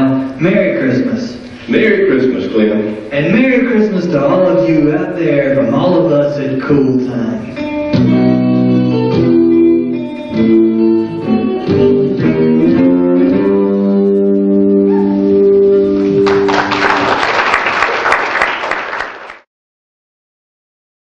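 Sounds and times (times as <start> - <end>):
guitar music: 5.5 - 16.8
audience applause: 15.9 - 19.5.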